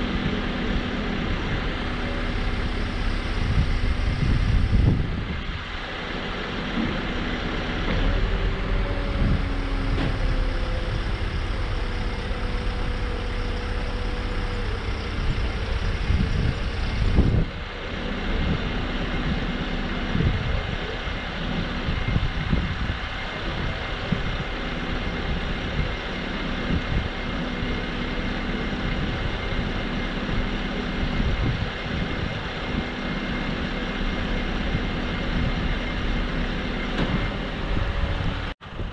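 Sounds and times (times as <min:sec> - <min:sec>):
diesel truck engine running: 0:00.0 - 0:38.9
wind rumble on microphone: 0:00.0 - 0:38.9
thump: 0:37.0 - 0:37.3.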